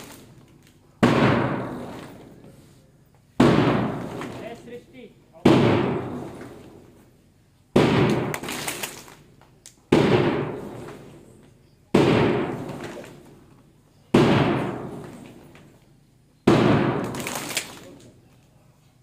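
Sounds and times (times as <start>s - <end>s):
loud sharp beats: 1.0s - 2.2s, 3.4s - 4.6s, 5.4s - 6.4s, 7.7s - 8.7s, 9.9s - 11.1s, 11.9s - 13.1s, 14.1s - 15.2s, 16.4s - 17.4s.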